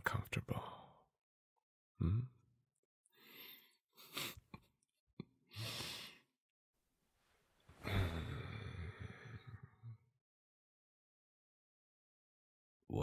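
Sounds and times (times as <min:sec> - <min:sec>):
man sighing breaths: 0:07.8 - 0:09.4.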